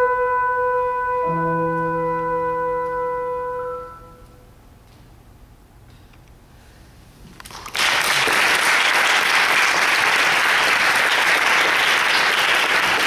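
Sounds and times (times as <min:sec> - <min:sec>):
audience applause: 0:07.5 - 0:13.0.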